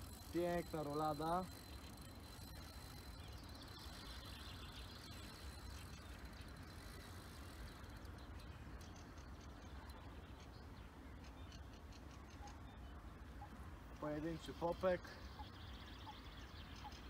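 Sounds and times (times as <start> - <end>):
fishing reel ticking: 0.0 - 10.5.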